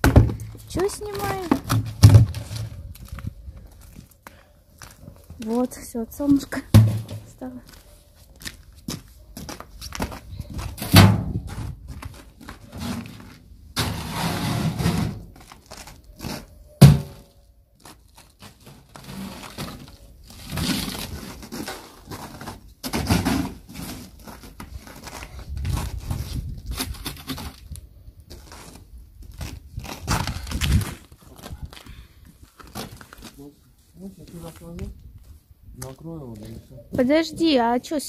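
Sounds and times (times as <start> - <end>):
knocks and scrapes of metal wheelbarrow: 0.0 - 2.8, 6.6 - 7.4, 10.7 - 15.6, 16.2 - 17.3, 18.4 - 25.1.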